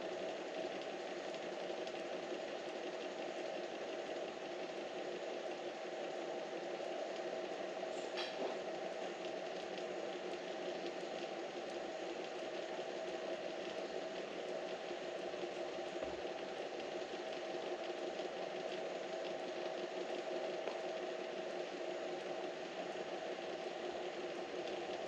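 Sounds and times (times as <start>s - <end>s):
machine hum with hiss: 0.0s - 25.0s.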